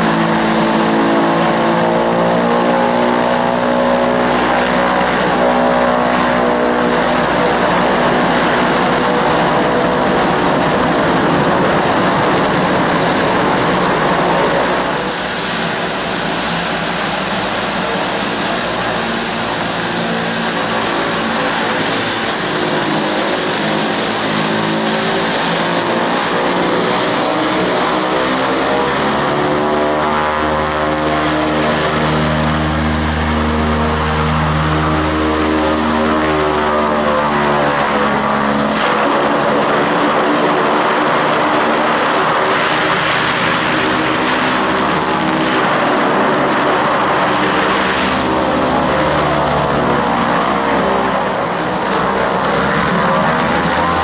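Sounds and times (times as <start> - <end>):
high whine rising in pitch: 0.0 - 54.0
turboprop aircraft engines: 0.0 - 54.0.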